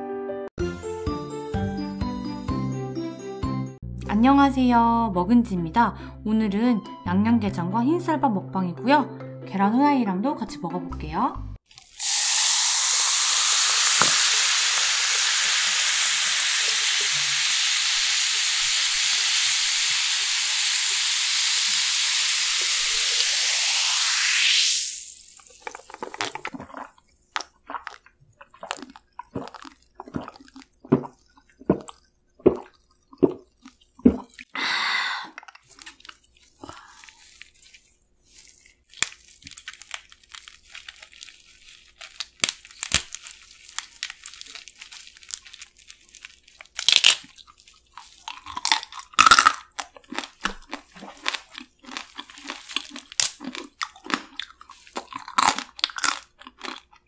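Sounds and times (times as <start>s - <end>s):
gulping soda: 25.0s - 37.4s, 46.6s - 57.0s
crunching and chewing crab: 25.4s - 34.6s, 35.3s - 57.0s
short breath: 34.6s - 35.4s
crab shell cracking: 35.3s - 37.6s, 38.4s - 57.0s.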